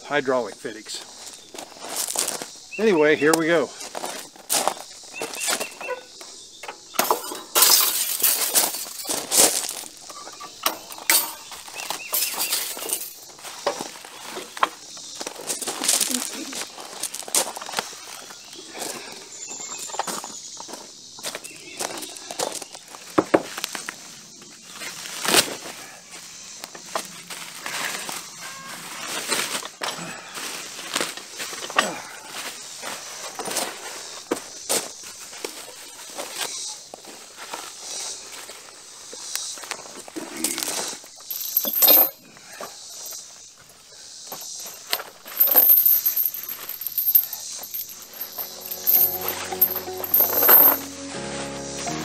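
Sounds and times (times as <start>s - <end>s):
footsteps on gravel: 0.9s - 24.1s, 44.3s - 52.0s
steel parts and chain clinking: 5.2s - 13.4s, 41.2s - 42.2s, 44.3s - 50.9s.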